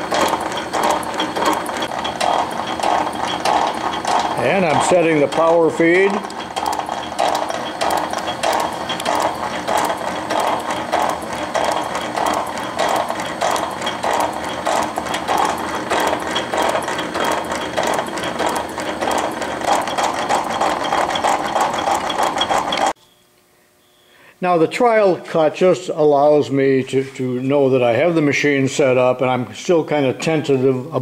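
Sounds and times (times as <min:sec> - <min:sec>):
cross-feed ratchet clicking: 0:00.0 - 0:23.0
metal shaper ram stroking: 0:00.0 - 0:23.0.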